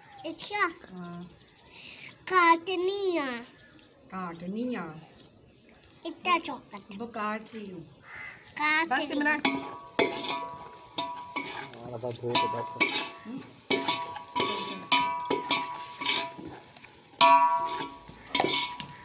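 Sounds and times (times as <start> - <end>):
knife clinking on metal plate: 9.1 - 19.0.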